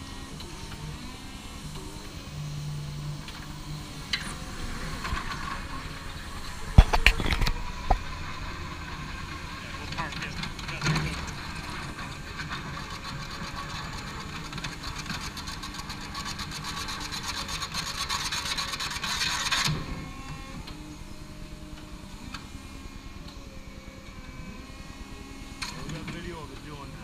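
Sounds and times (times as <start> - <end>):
harsh rasping grinding: 0.0 - 20.6
forklift running: 0.0 - 27.0.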